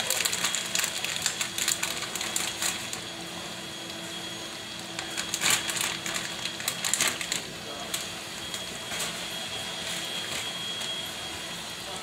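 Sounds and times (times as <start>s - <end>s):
plastic pouch crinkling: 0.0s - 3.0s, 5.0s - 7.5s.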